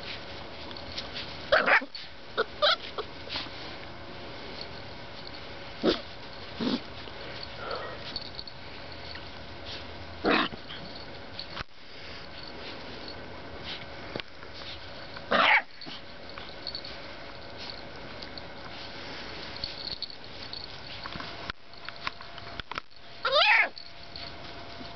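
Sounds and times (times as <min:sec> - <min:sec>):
puppies yipping: 0:01.5 - 0:03.0, 0:23.2 - 0:23.9.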